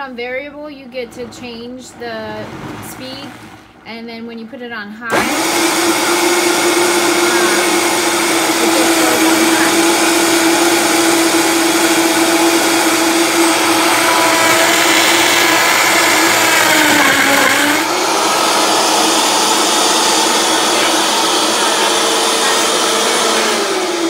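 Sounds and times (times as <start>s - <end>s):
blender motor whining: 5.1s - 24.0s.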